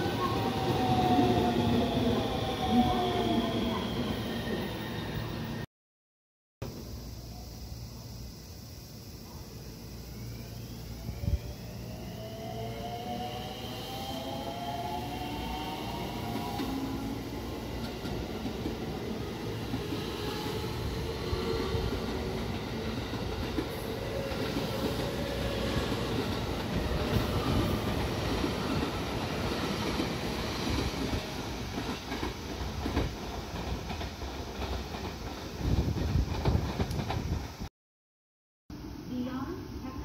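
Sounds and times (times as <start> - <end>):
train wheels on rails: 11.1 - 37.7
clickety-clack over rail joints: 29.8 - 37.5.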